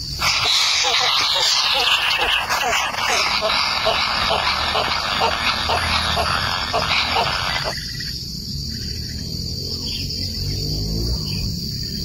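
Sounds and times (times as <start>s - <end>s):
high-pitched drone: 0.0s - 7.9s
short animal calls: 0.2s - 7.8s.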